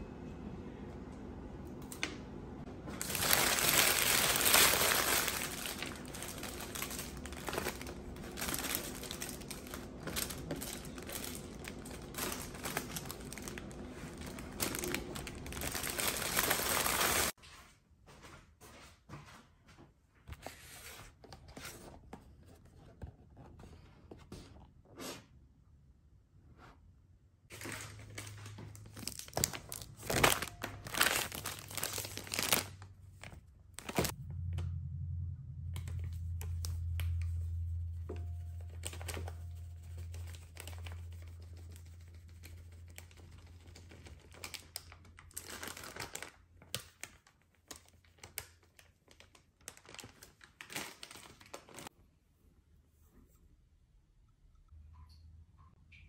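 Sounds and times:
low steady hum: 0.0s - 17.4s, 25.7s - 46.2s
plastic bag crinkling and tearing: 3.0s - 17.4s, 27.5s - 34.2s, 38.8s - 41.4s, 42.7s - 51.9s
powder pouring rustle: 3.0s - 17.4s.

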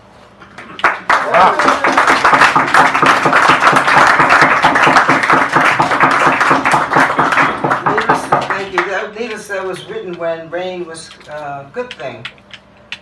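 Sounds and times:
audience applauding: 0.5s - 9.1s.

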